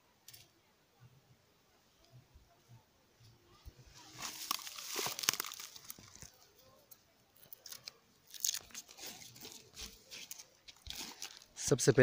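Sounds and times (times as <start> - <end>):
straw and twigs rustling: 3.5 - 12.0.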